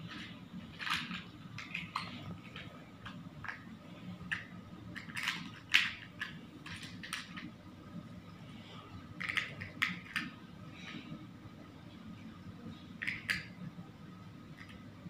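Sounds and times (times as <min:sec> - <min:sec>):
plastic blocks clicking: 0:00.0 - 0:07.5, 0:09.2 - 0:10.4, 0:13.0 - 0:13.6.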